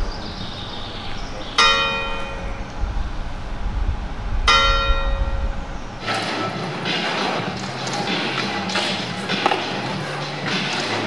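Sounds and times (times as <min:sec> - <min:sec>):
church bell tolling: 0:00.0 - 0:02.8, 0:04.5 - 0:06.1
skatepark clatter: 0:04.6 - 0:11.0.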